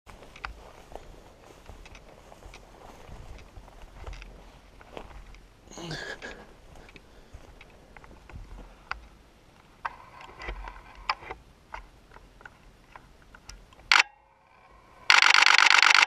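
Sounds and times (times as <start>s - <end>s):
camera shutter burst: 13.9s - 16.0s.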